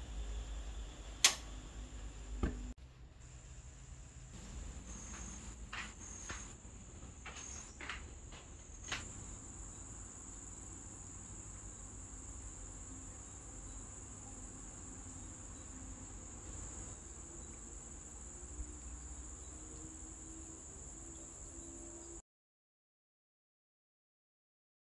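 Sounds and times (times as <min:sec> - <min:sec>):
insects trilling: 0:03.3 - 0:22.2.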